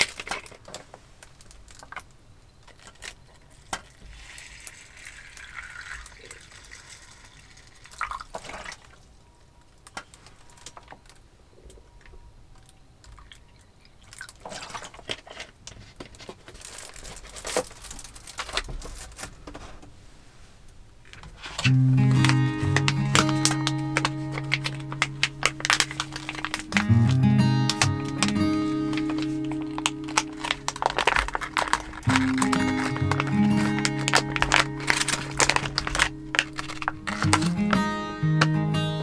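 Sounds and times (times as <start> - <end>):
water pouring into pot: 3.9 - 8.7.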